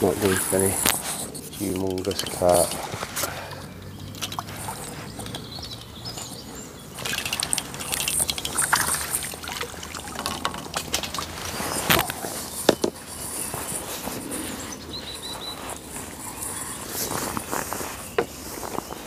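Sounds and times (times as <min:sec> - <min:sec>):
water splashing and trickling: 0:00.0 - 0:13.3.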